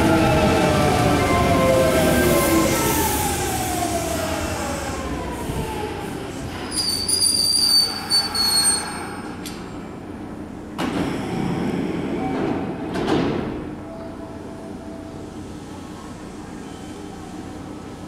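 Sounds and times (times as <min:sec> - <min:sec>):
electric train whine: 0:00.0 - 0:12.4
high brake squeal: 0:06.6 - 0:09.5.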